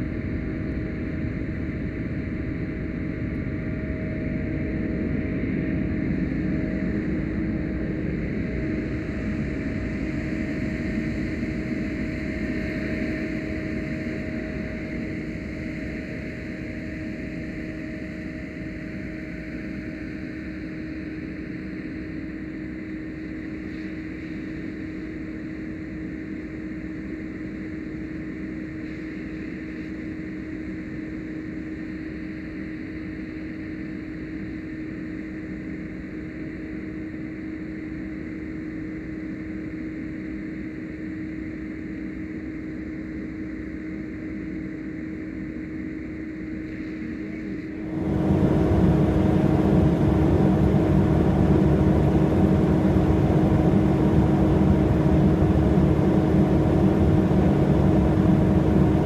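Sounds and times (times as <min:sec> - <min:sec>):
fire engine pump hum: 0:47.8 - 0:59.0.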